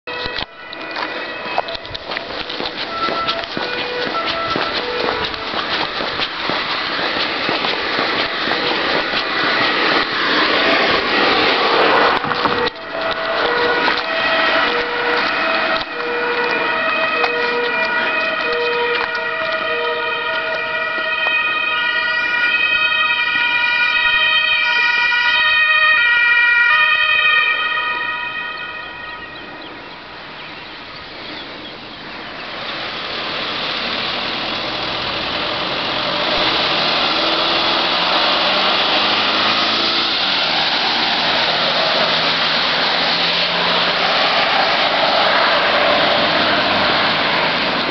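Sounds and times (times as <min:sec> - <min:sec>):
two-tone ambulance siren: 0:00.0 - 0:47.9
loud steady rushing noise: 0:00.2 - 0:19.2, 0:32.0 - 0:47.9.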